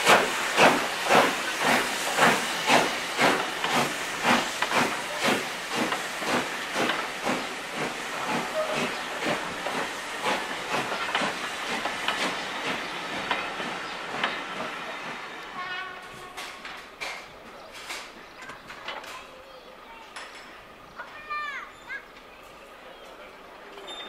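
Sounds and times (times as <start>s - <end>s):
steam hissing: 0.0s - 16.2s
steam locomotive exhaust beats: 0.0s - 17.4s
train coaches rolling past: 0.0s - 24.0s.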